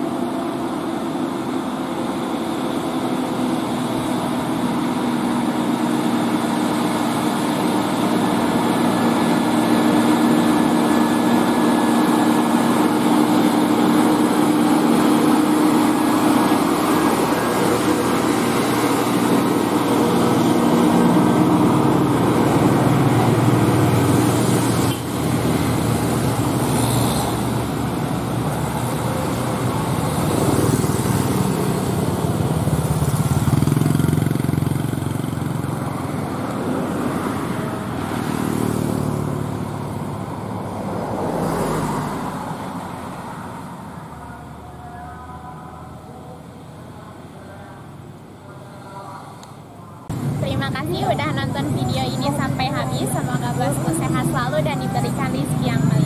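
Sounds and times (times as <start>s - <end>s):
road traffic: 0.0s - 56.0s
truck diesel engine passing: 0.0s - 56.0s
motorcycles: 3.5s - 56.0s.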